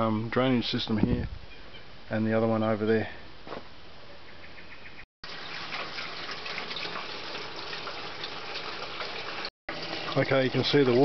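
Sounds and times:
water splashing into gutter: 5.2 - 11.0.

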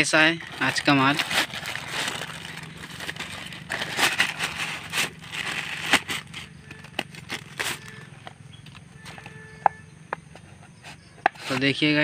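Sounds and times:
plastic mailer bag tearing: 0.0 - 8.1.

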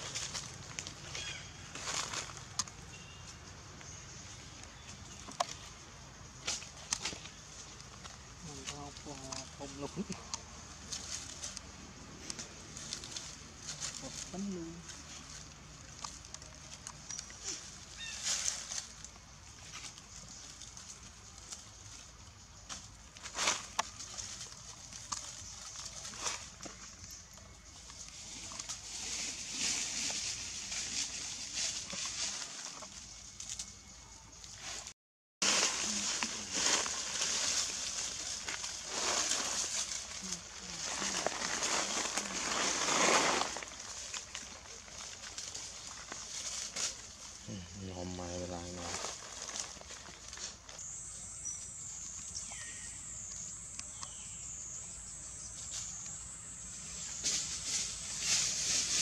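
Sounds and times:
falling bird calls: 0.0 - 7.8, 12.2 - 27.5
dry leaves rustling and crackling: 0.0 - 54.5, 55.5 - 59.0
insects droning: 0.0 - 59.0.

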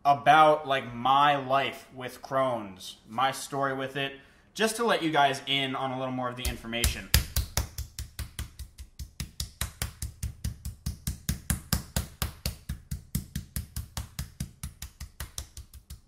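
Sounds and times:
meat mallet pounding chicken: 6.5 - 16.0.

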